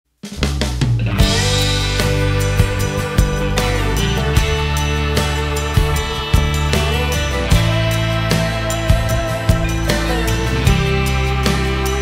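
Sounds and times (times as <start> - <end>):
instrumental music with beat: 0.2 - 12.0.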